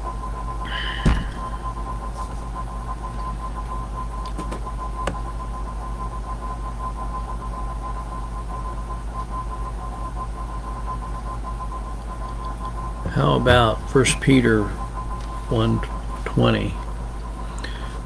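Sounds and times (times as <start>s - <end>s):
low electrical hum and hiss: 0.0s - 5.8s, 11.2s - 18.0s.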